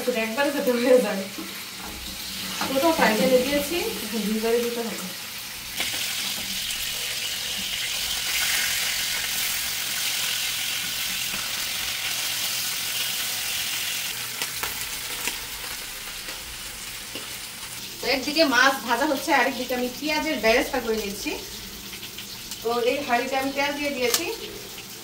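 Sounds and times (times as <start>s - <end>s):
fish frying in hot oil: 0.0s - 25.0s.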